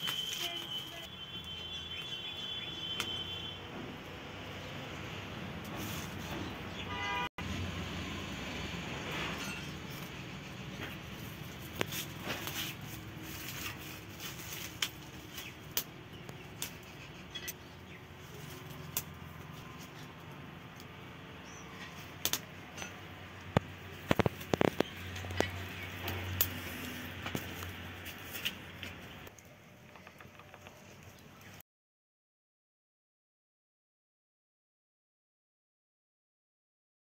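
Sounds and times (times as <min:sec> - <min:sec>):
wood fire crackling and popping: 0:11.1 - 0:17.6, 0:18.4 - 0:21.0, 0:21.8 - 0:31.0.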